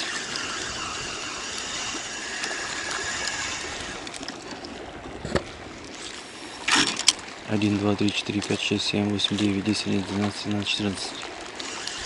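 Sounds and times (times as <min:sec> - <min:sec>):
small waves lapping on a bank: 0:00.0 - 0:12.0.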